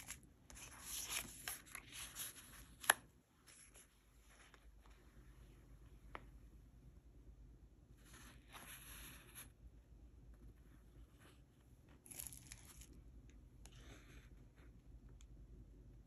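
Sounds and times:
paper rustling and scraping: 0:00.0 - 0:04.6.

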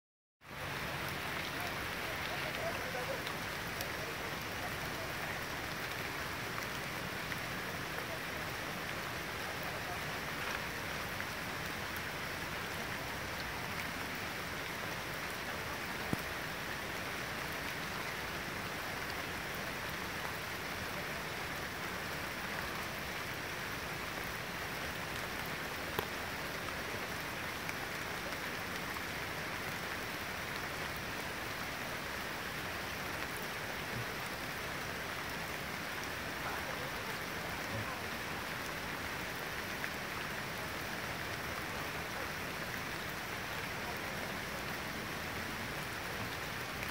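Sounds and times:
steady rain: 0:00.4 - 0:46.9.

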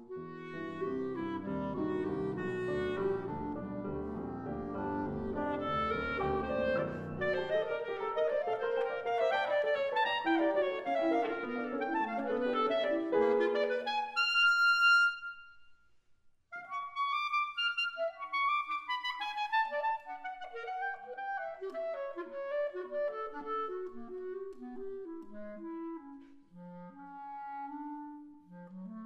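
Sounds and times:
piano: 0:00.0 - 0:15.7
clarinet: 0:00.0 - 0:15.9, 0:16.5 - 0:29.0.

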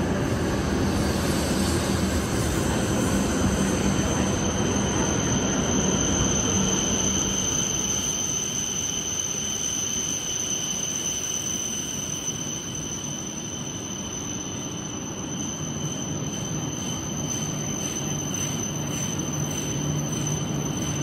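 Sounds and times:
high-pitched whine: 0:00.0 - 0:21.0
train wheels rumbling: 0:00.0 - 0:21.0.

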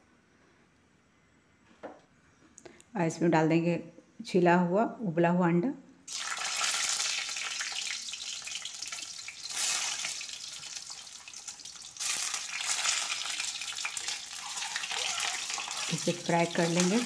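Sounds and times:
hot oil sizzling: 0:06.1 - 0:17.0.

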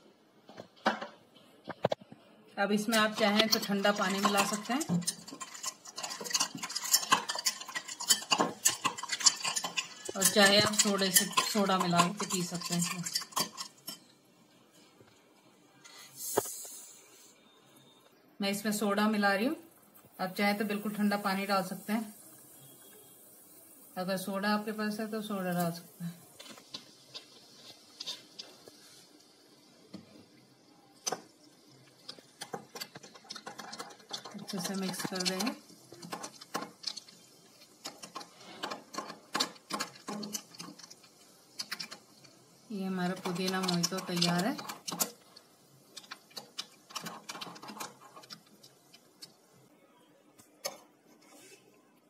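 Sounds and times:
soda fizzing: 0:19.7 - 0:49.6.

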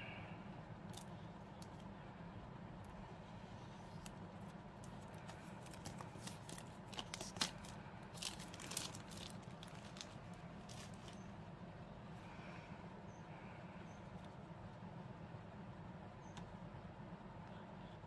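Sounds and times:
plastic wrap crinkling: 0:03.8 - 0:11.2.

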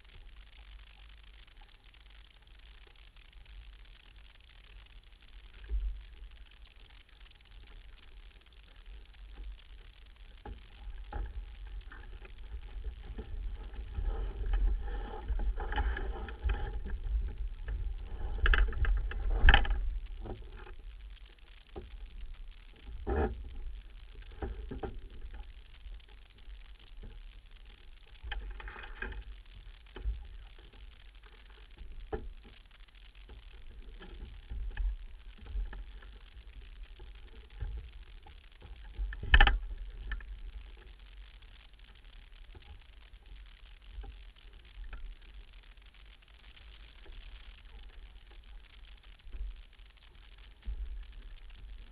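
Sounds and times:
water along boat hull: 0:00.0 - 0:51.9
wind rumbling on microphone: 0:10.4 - 0:31.3.

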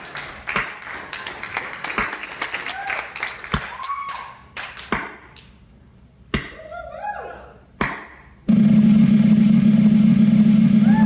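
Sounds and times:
audience applause: 0:00.0 - 0:04.8
loud steady low hum: 0:07.6 - 0:11.0.

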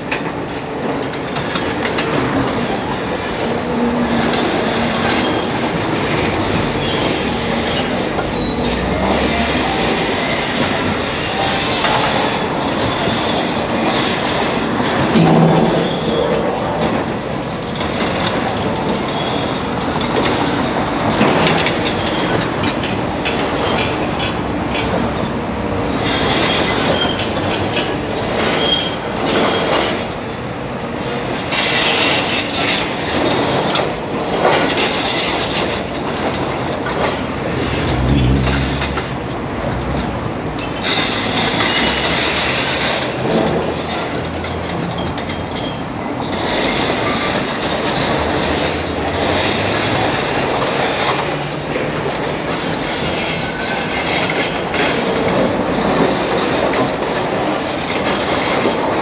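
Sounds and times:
diesel engine rumbling: 0:37.3 - 0:42.1.

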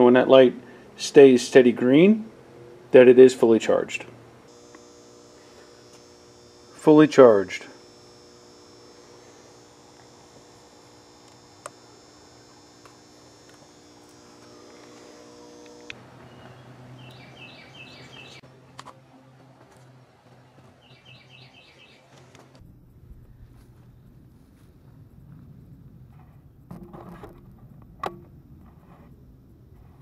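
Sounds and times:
faint electrical hum: 0:00.0 - 0:30.0
bird chirping: 0:16.0 - 0:18.4, 0:20.8 - 0:22.1.

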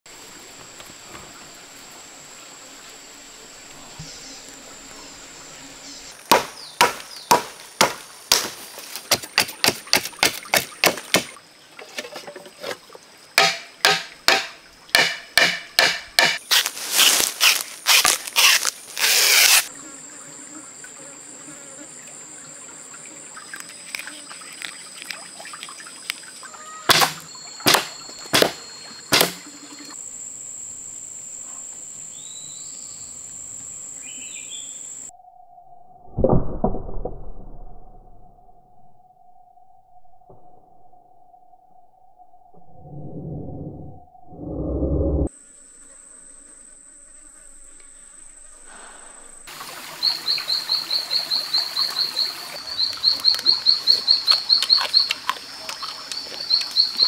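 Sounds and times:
high insect drone: 0:00.1 - 0:35.3, 0:45.2 - 0:57.0
sharp knocks cutting bamboo: 0:06.3 - 0:11.4, 0:13.4 - 0:19.6, 0:26.9 - 0:29.4.

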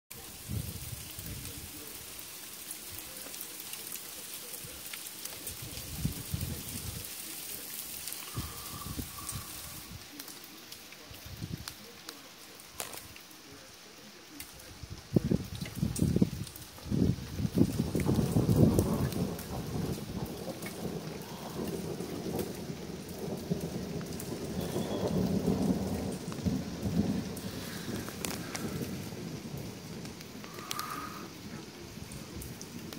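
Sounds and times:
heavy rain falling: 0:00.1 - 0:32.9
water drips: 0:00.1 - 0:32.9
low thunder rumbling: 0:04.6 - 0:10.2, 0:14.6 - 0:32.9.

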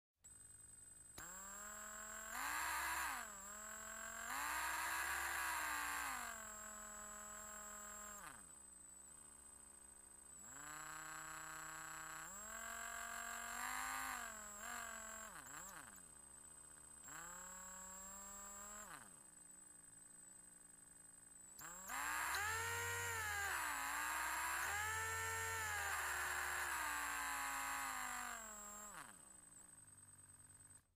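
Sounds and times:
faint high whine: 0:00.2 - 0:30.9
electric drill motor whirring: 0:01.1 - 0:08.5, 0:10.4 - 0:19.2, 0:21.6 - 0:30.8.

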